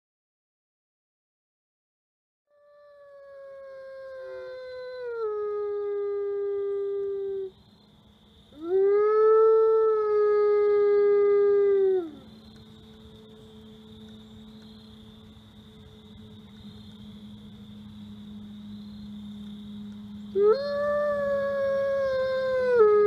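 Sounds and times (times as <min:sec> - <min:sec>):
wolf howling: 0:02.6 - 0:07.5, 0:08.6 - 0:12.4, 0:20.3 - 0:23.0.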